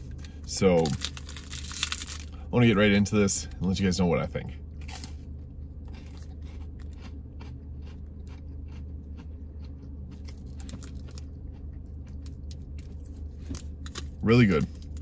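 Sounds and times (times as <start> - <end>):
crunching wafer bar: 0.2 - 2.3.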